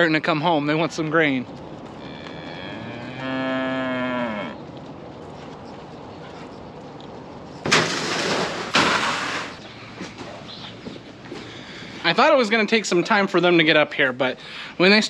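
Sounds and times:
cow mooing: 2.0s - 4.6s.

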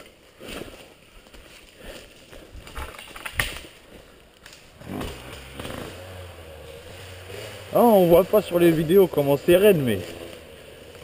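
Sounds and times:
twig snapping: 2.6s - 5.8s.

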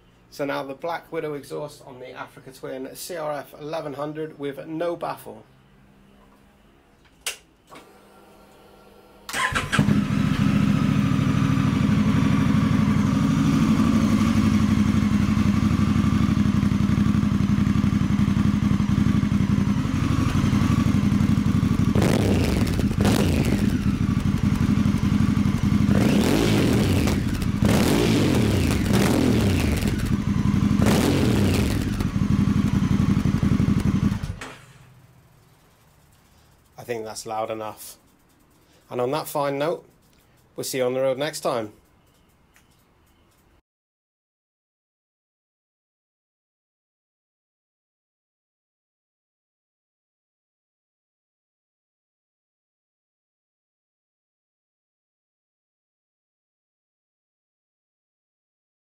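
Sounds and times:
motorcycle engine idling and revving: 9.4s - 36.7s.

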